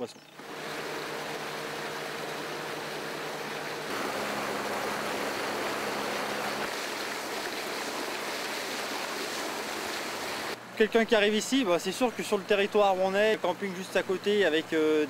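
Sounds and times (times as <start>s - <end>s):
outboard motor running: 0.2s - 10.6s
water rushing against hull: 0.4s - 10.6s.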